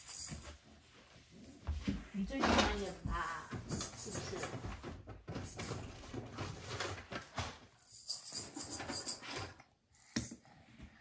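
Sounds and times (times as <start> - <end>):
plastic toy pieces rattling: 7.8 - 9.5.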